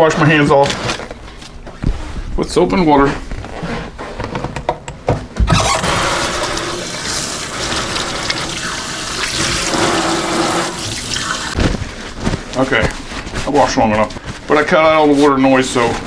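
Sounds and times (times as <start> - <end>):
hands washing under water: 5.6 - 11.6.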